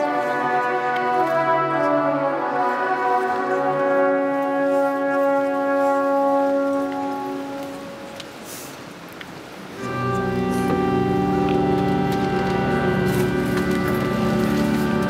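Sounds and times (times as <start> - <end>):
pipe organ chords: 9.8 - 15.0.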